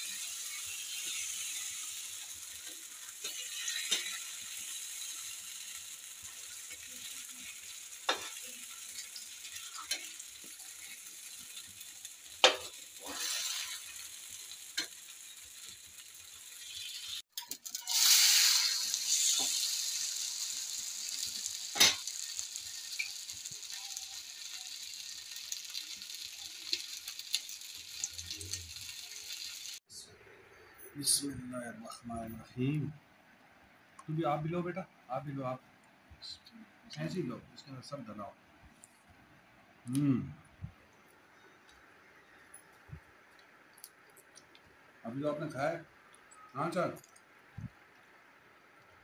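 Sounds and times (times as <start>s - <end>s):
batter sizzling in pan: 0.0s - 29.9s, 41.1s - 49.0s.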